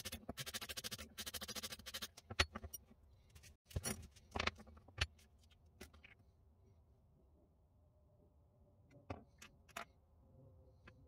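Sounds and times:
sandpaper rubbing metal rod: 0.0s - 2.2s.

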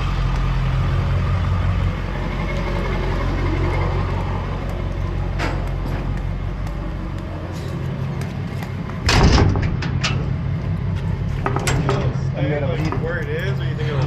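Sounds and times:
vehicle engine idling: 0.0s - 14.0s
door bang: 9.0s - 10.3s.

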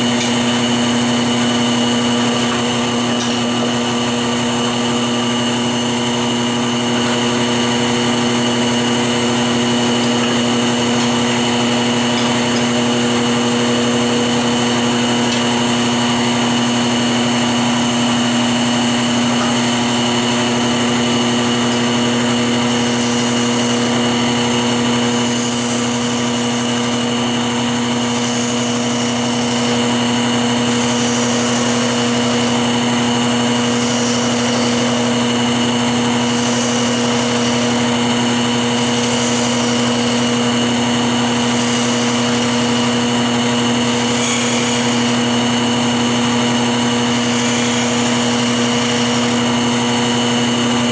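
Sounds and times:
turning tool cutting wood hiss: 0.0s - 50.9s
wood lathe motor hum and whine: 0.0s - 50.9s.

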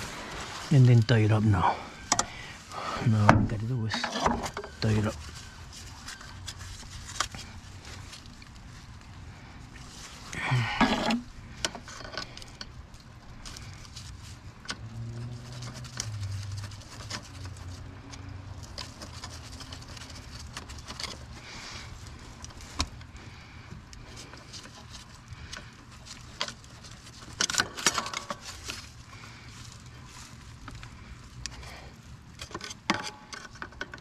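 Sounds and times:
hand tool and parts rattling: 3.1s - 8.3s, 10.6s - 23.2s, 24.1s - 31.0s, 32.0s - 34.0s.

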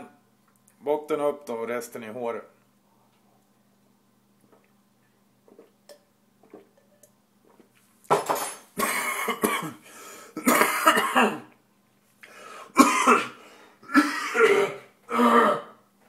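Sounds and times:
faint gulps: 4.4s - 4.8s, 5.4s - 6.8s
man coughing hard: 8.8s - 9.8s, 10.4s - 11.5s, 12.8s - 15.8s.

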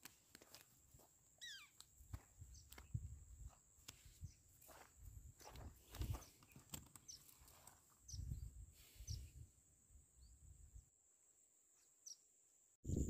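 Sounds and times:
high bird chirps: 1.4s - 1.8s.

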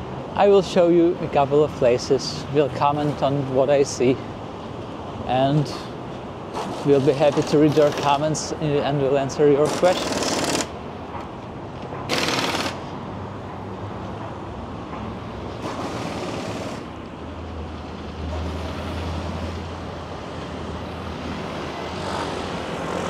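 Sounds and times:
vehicles passing: 0.0s - 23.0s.

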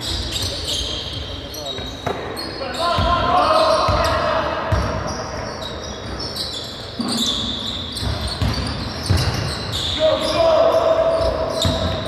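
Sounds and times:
basketball bouncing on floor: 8.0s - 9.4s, 11.6s - 12.0s
echoing players' voices: 9.9s - 12.0s.

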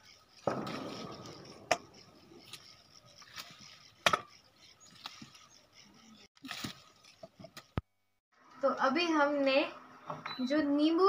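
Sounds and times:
branches and leaves rustling: 0.0s - 7.9s.

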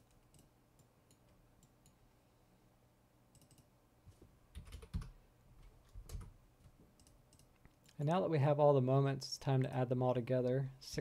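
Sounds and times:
computer keyboard keystrokes: 4.6s - 5.1s, 6.0s - 6.3s.

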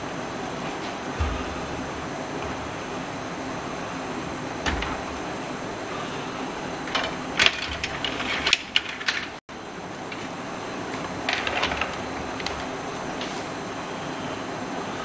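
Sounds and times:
cables and connectors clicking: 6.8s - 9.4s.

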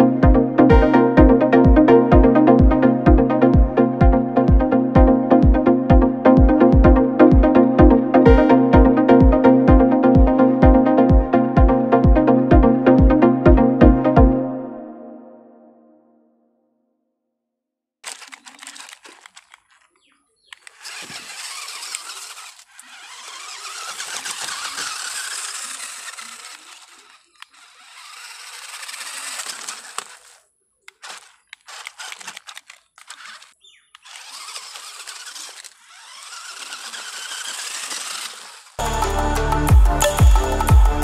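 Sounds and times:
electric motor whining: 18.0s - 41.0s.

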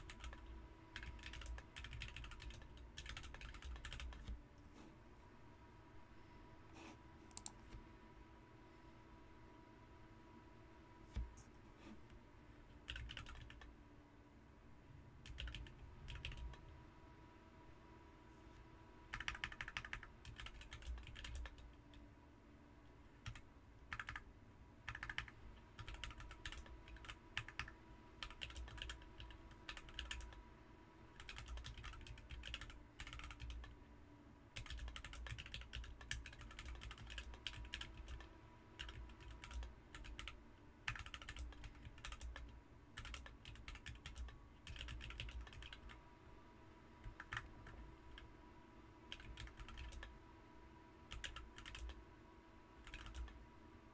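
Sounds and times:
mechanical keyboard typing: 0.0s - 4.4s, 12.8s - 13.7s, 15.2s - 16.6s, 19.1s - 21.8s, 23.2s - 24.2s, 24.9s - 30.4s, 31.2s - 33.8s, 34.6s - 46.0s, 47.0s - 48.3s, 49.1s - 50.1s, 51.1s - 52.0s, 52.8s - 53.4s
faint steady hum: 0.0s - 53.9s.

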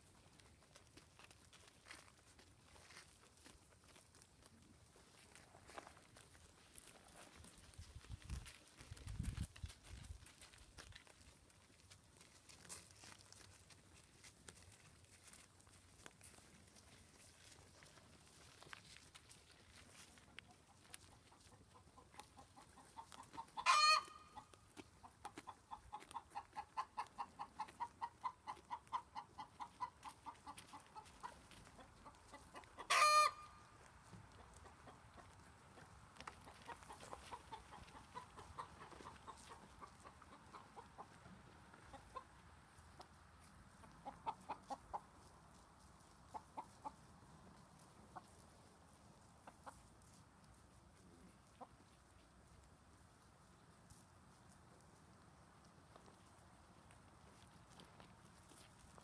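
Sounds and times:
hen clucking: 19.9s - 50.0s, 50.9s - 52.6s.

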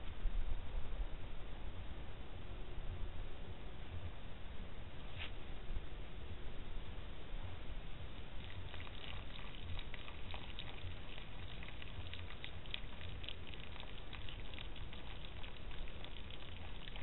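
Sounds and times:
steady low hum: 0.0s - 17.0s
deer foraging crackles and clicks: 8.2s - 17.0s.

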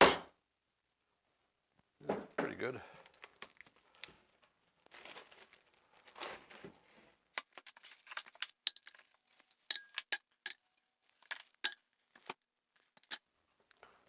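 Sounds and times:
wax pieces clicking and clinking: 2.9s - 4.4s, 7.4s - 13.2s
plastic wrapping crinkling: 2.9s - 13.2s.

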